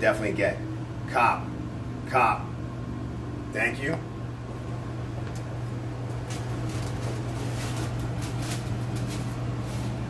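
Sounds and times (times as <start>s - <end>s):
steady low hum: 0.0s - 10.0s
tissue paper rustling: 6.2s - 10.0s.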